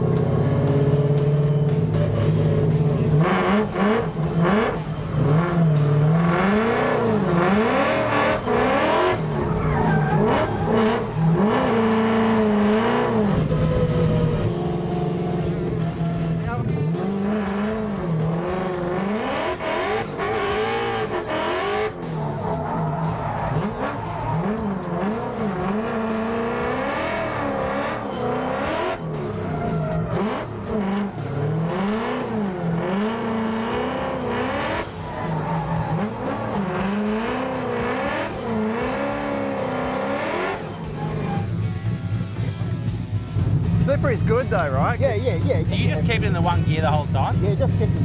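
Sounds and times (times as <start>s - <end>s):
car engine revving: 0.0s - 48.0s
tyre squeal: 8.8s - 12.5s, 34.5s - 39.6s, 40.8s - 41.6s.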